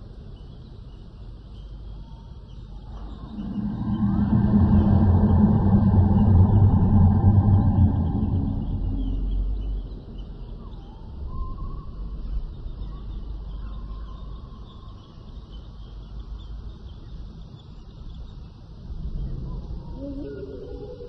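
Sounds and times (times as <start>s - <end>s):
steady low rumble: 0.0s - 21.0s
loud deep rumble: 2.7s - 13.5s
faint bird-like calls: 19.2s - 21.0s.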